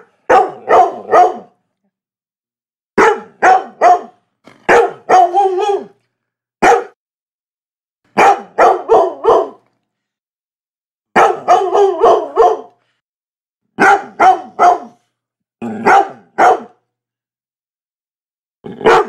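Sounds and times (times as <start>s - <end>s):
dog barking: 0.0s - 1.6s, 3.0s - 6.0s, 6.6s - 7.0s, 8.1s - 9.7s, 11.1s - 12.8s, 13.8s - 15.0s, 15.7s - 16.8s, 18.7s - 19.0s.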